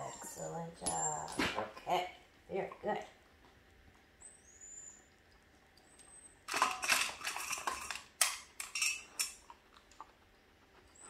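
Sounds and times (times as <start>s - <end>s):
dog collar and leash clinking: 0.0s - 1.6s, 8.6s - 9.4s.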